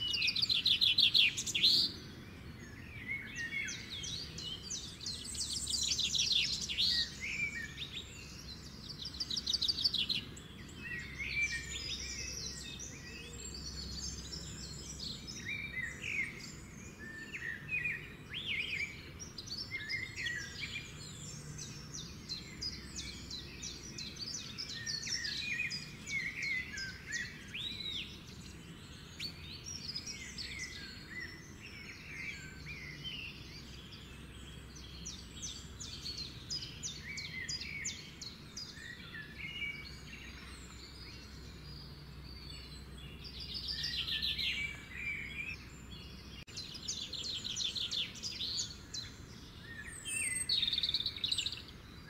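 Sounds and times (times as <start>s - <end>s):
small birds chirping: 0.0s - 52.0s.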